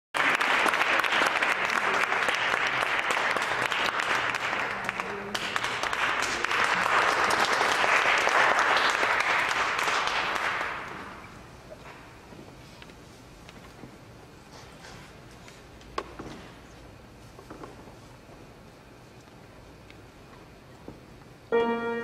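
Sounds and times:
audience applauding: 0.2 - 11.2.

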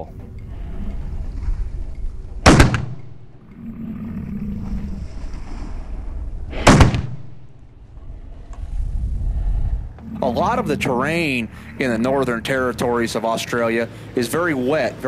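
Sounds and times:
rifle shots: 2.4 - 3.2, 6.5 - 7.5.

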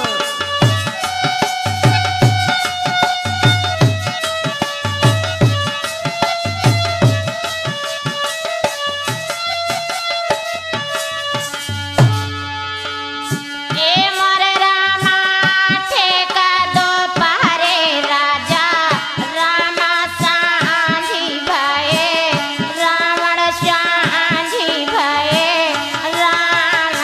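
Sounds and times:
woman singing folk song: 13.7 - 27.0.

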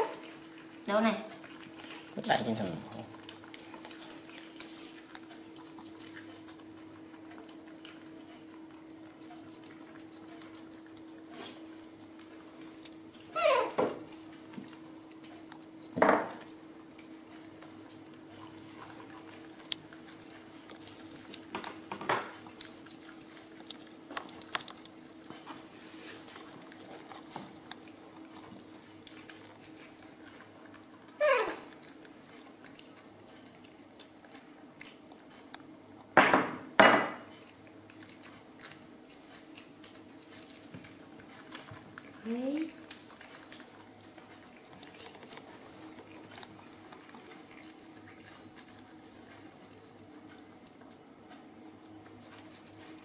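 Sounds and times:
monkeys high calls: 13.3 - 13.8, 31.2 - 31.6.

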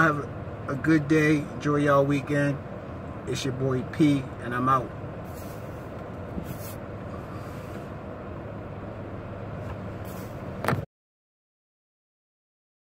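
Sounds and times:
car idling hum: 0.0 - 10.8
soft hisses: 5.2 - 7.9, 10.0 - 10.4.

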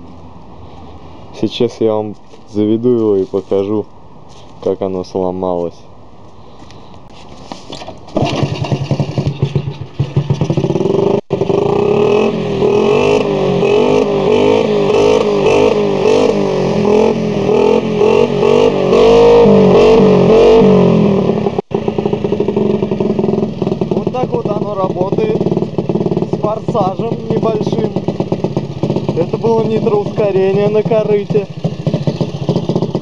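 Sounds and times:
moped engine revving: 7.7 - 33.0.

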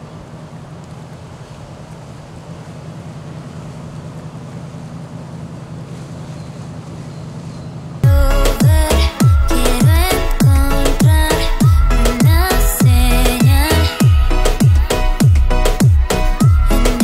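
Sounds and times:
boat engine drone: 0.0 - 17.0
electronic dance music: 8.0 - 17.0.

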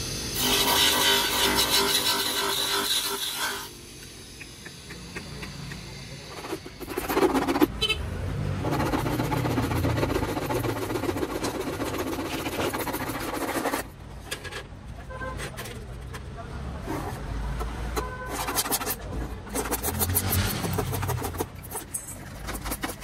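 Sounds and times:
steady rough noise: 0.0 - 14.1
grinding disc on plastic: 8.6 - 14.4, 17.6 - 23.0.

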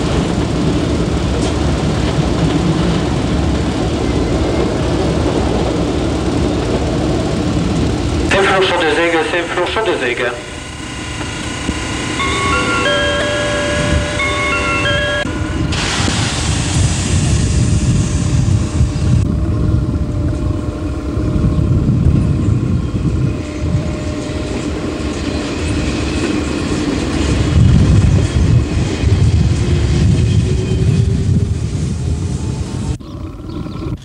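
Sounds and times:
train rumble with hum: 0.0 - 34.0
loud hiss: 15.3 - 19.1.

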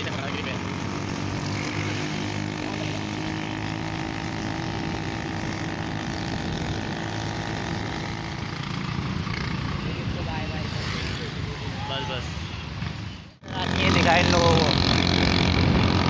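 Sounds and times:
motorcycle engine running: 0.0 - 10.0, 13.4 - 16.0
tyre noise on road: 0.0 - 16.0
wind rushing over microphone: 3.6 - 9.3, 13.6 - 16.0.

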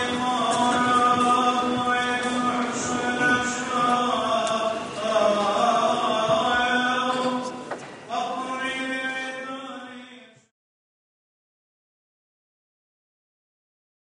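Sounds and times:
group singing a chant: 0.0 - 9.6.

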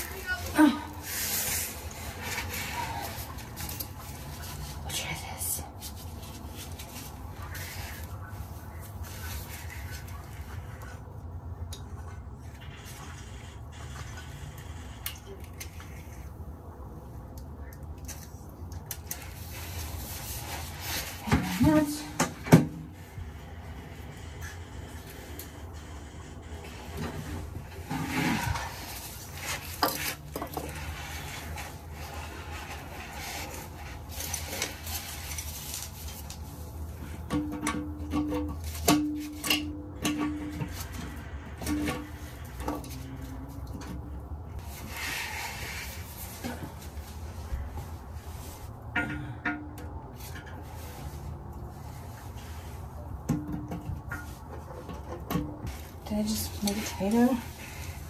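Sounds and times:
hands scraping and rubbing: 0.0 - 11.1, 44.6 - 48.8.

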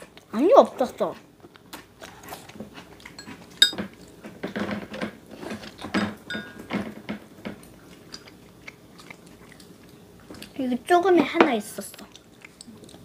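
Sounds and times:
children chewing: 0.0 - 13.0.

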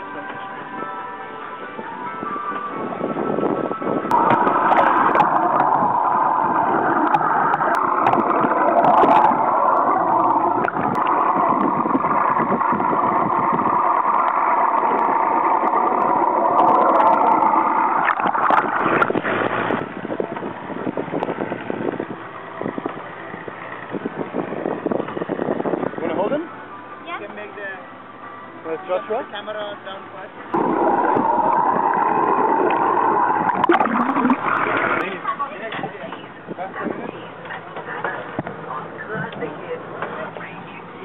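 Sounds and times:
outboard motors heard underwater: 3.2 - 25.6, 30.5 - 36.3.

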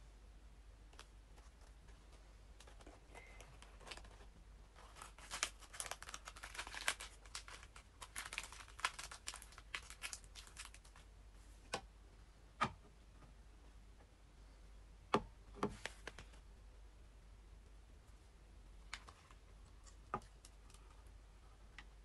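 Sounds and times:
lettuce leaves tearing and crackling: 4.9 - 10.8.

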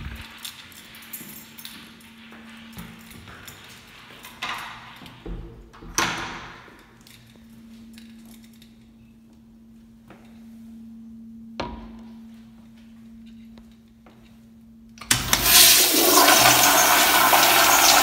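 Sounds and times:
steady low hum: 0.0 - 4.1, 6.8 - 15.4
footsteps: 0.0 - 5.2.

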